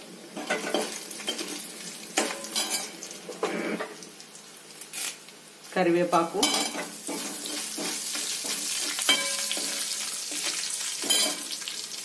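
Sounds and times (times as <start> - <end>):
leaves sizzling in hot oil: 0.0 - 12.0
spoon clinking against pan: 6.4 - 11.5.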